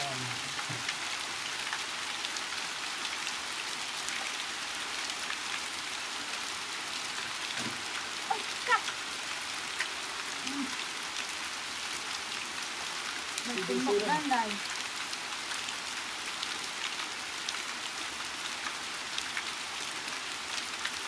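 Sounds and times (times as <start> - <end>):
steady rain falling: 0.0 - 21.0.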